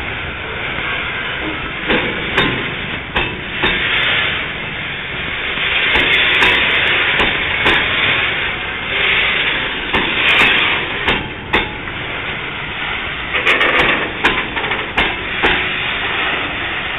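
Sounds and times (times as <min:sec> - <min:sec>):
freight train rushing on track: 0:00.0 - 0:16.9
train clanks and knocks: 0:00.0 - 0:16.9.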